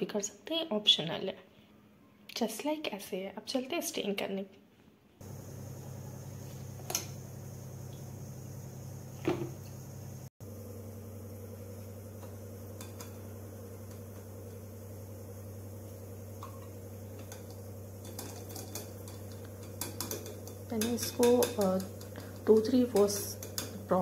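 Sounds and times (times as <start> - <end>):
steady low hum: 5.2 - 24.0
strainer and bowl clicking: 16.4 - 24.0.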